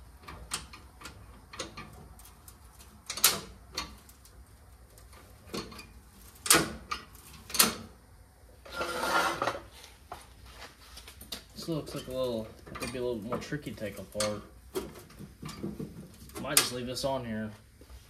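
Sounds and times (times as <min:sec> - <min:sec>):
hand tool and metal parts clanking: 0:11.2 - 0:16.8.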